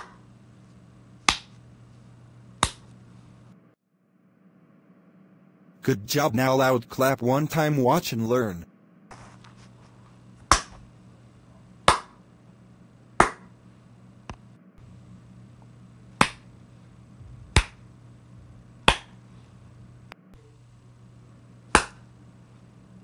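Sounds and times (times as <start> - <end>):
faint steady hum: 0.0 - 23.0
sharp hand claps: 1.3 - 1.5, 2.6 - 2.8, 10.5 - 10.8, 11.9 - 12.2, 13.2 - 13.5, 16.2 - 16.4, 17.6 - 17.8, 21.8 - 22.0.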